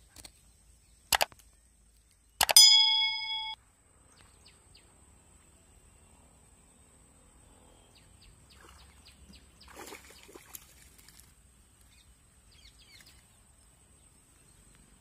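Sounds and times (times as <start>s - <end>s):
bird chirps: 2.3s - 3.6s
fishing line splashing in pond: 8.5s - 11.9s.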